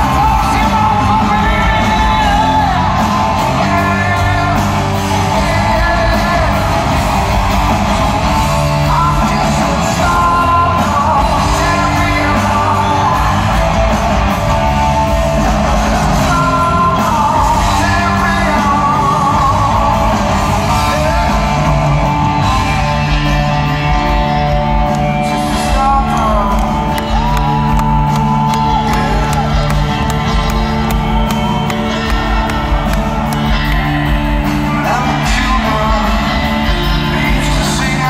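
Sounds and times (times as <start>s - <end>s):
live hard rock band: 0.0s - 38.0s.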